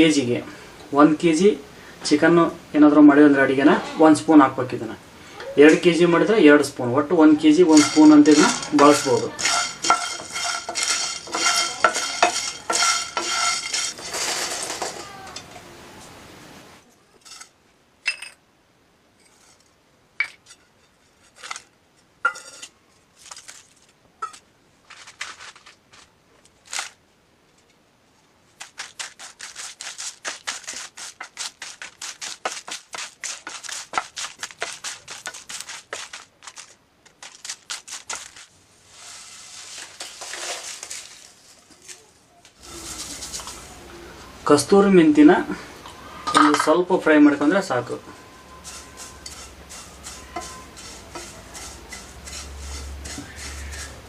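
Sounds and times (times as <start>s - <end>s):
soft hiss: 0.0s - 54.0s
wooden spatula scraping spices in pan: 7.4s - 15.0s, 22.3s - 22.7s, 28.6s - 42.0s, 42.6s - 43.8s, 48.4s - 54.0s.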